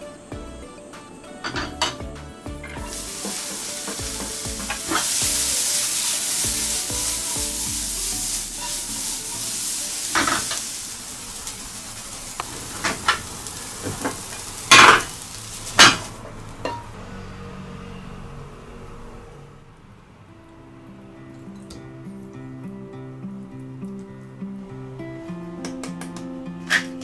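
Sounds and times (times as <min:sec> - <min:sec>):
onion sizzling in hot oil: 0:02.8 - 0:16.9.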